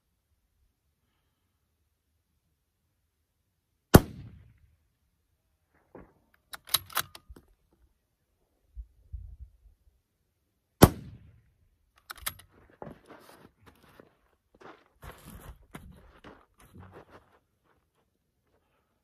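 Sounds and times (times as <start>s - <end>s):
suppressed rifle shots: 3.9s - 4.5s, 10.8s - 11.3s
rifle bolt clicks and clacks: 6.4s - 7.5s, 12.0s - 12.5s.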